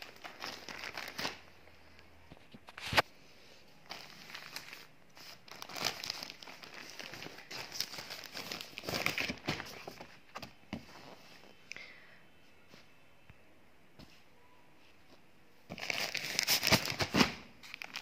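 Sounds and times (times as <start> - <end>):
plastic packaging crinkling: 0.0 - 3.0, 3.8 - 11.2, 15.7 - 18.0.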